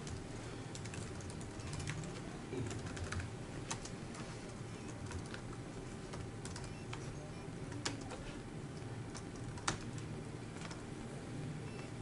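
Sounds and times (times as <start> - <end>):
typing on computer keyboard: 0.0 - 4.2, 4.8 - 7.1, 7.7 - 8.2, 9.1 - 10.0, 10.6 - 10.8
low room noise: 0.0 - 12.0.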